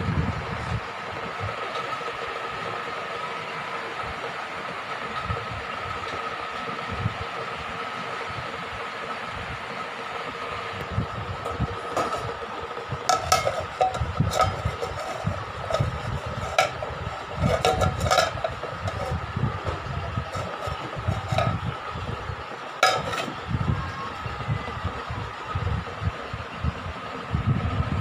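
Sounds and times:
induction cooktop whine: 0.0 - 28.0
steel cookware clinking: 13.1 - 19.2, 20.3 - 21.6, 22.8 - 23.3.

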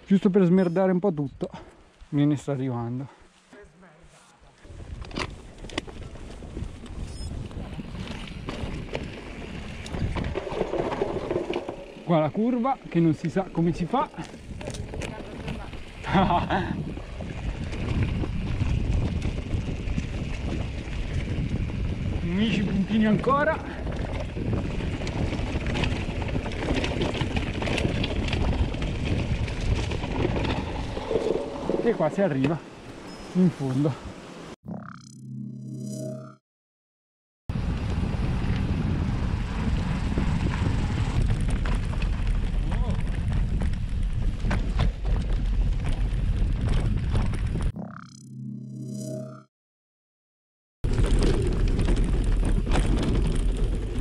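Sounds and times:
bike tyres rumbling on dirt: 4.7 - 32.8, 37.5 - 47.8, 50.8 - 54.0
bike knocking and rattling: 4.8 - 32.5, 39.6 - 47.7, 50.8 - 54.0
wind on microphone: 14.4 - 31.8, 37.5 - 47.8.

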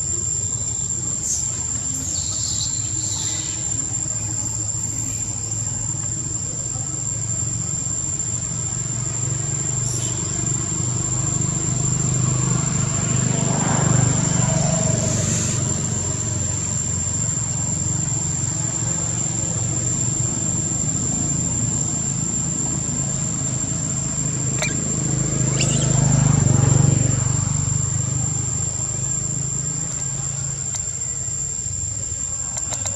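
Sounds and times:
high-pitched whine: 0.0 - 32.9
motor vehicles humming: 0.0 - 32.9.

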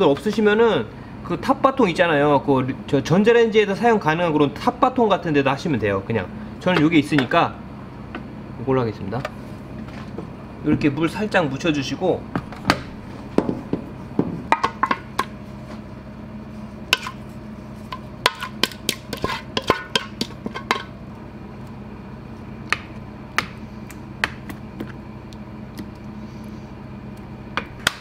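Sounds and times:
spatula knocking and scraping pot: 16.9 - 17.2, 17.8 - 20.9.

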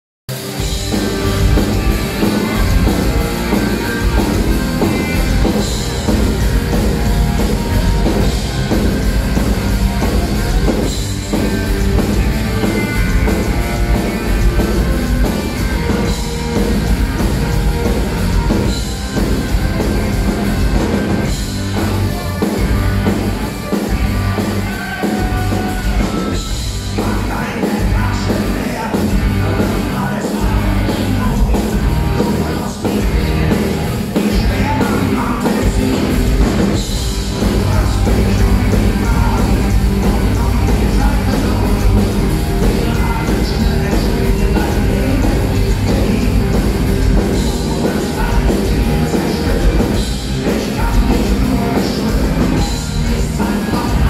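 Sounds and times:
drums: 0.3 - 54.0
electric guitars: 0.3 - 54.0
folk metal band playing live: 0.3 - 54.0.

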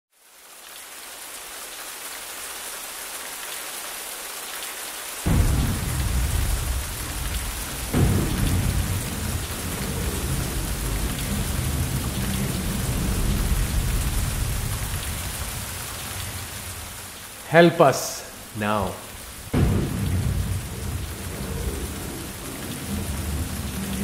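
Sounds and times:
heavy rain hissing: 0.2 - 24.0
thunder rumbling and cracking: 5.3 - 17.4, 18.3 - 24.0.

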